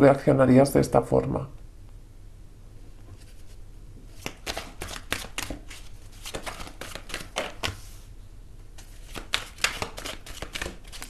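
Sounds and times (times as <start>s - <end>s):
cards being shuffled: 3.2s - 8.1s, 8.8s - 11.0s.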